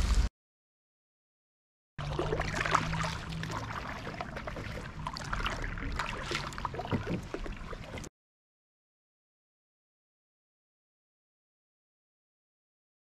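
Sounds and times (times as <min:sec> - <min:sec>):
paddle splashing water: 0:02.0 - 0:08.1.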